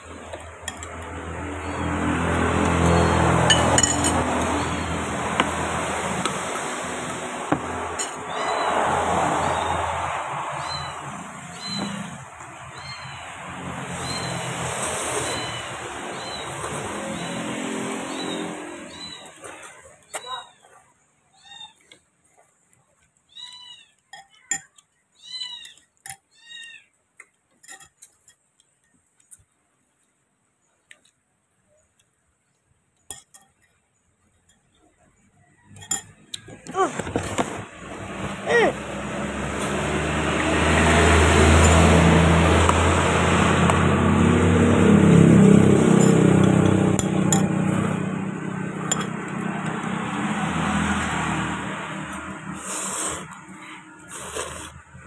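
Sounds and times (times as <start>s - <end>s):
vehicle engine running: 0.0s - 19.3s, 36.8s - 55.0s
metal cutlery clinking on ceramic bowl: 3.4s - 4.5s, 24.1s - 24.9s, 27.5s - 28.9s, 33.1s - 34.8s, 35.7s - 36.5s, 45.9s - 47.8s, 48.8s - 49.4s
fork clinking ceramic bowl: 3.4s - 4.6s, 45.9s - 47.8s, 48.8s - 49.3s.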